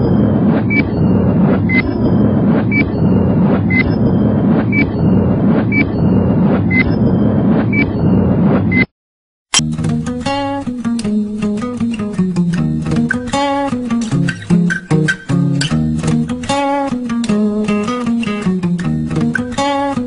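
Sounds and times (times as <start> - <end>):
low droning noise: 0.0 - 8.7
acoustic guitar music: 9.6 - 20.0.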